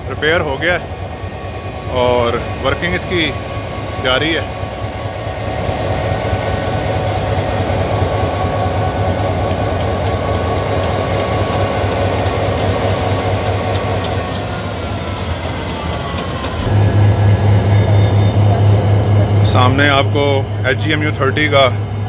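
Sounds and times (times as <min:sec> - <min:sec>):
diesel engine idling: 0:00.0 - 0:22.0
light ticking: 0:09.4 - 0:14.5.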